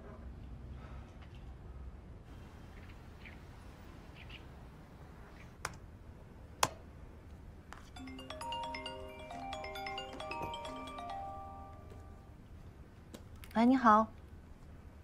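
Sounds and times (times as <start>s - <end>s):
mallet percussion music: 8.0s - 12.3s.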